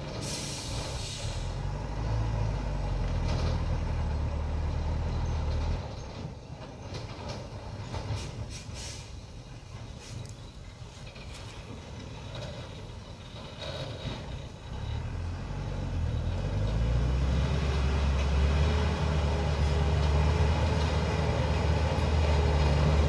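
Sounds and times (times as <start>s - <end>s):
truck engine rumbling under load: 0.0s - 23.0s
short hiss: 0.2s - 1.6s, 8.1s - 9.3s.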